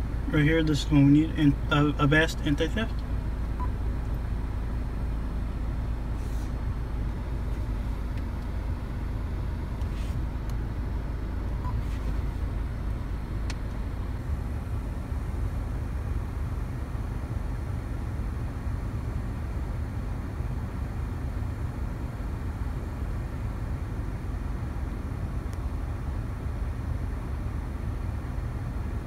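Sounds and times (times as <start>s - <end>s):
car engine low rumble: 0.0s - 29.0s.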